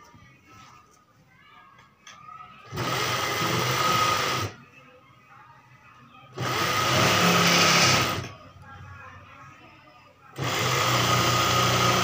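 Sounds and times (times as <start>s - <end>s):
electric sewing machine running: 2.7s - 4.5s, 6.4s - 8.3s, 10.4s - 12.0s.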